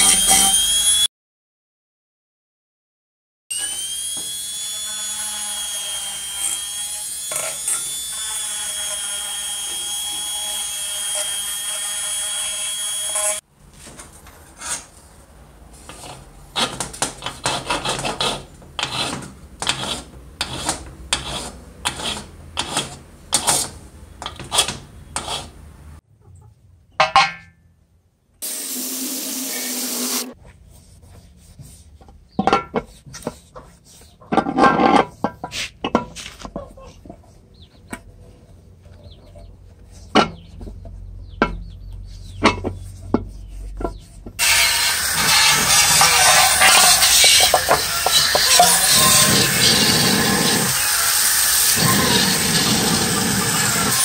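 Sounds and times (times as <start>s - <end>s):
rotary tool whining: 0.0s - 1.1s, 44.4s - 54.0s
hand file rasping on metal: 15.9s - 25.5s, 42.7s - 54.0s.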